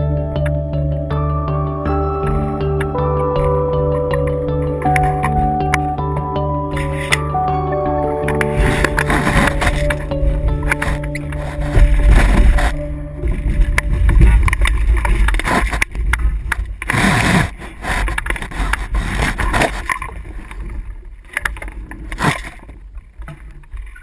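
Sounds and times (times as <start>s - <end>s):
water sloshing against hull: 8.0s - 24.0s.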